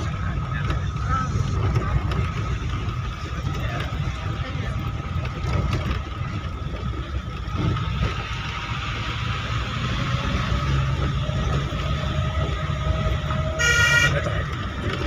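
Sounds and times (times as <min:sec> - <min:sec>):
vehicle engine and tyre rumble: 0:00.0 - 0:15.0.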